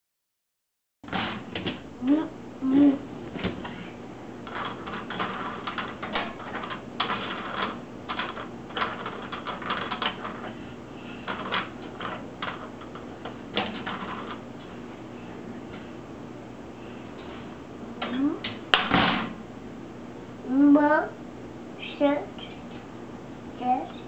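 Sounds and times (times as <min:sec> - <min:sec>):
rasping scrapes and rattles on dishwasher: 0:03.4 - 0:14.7.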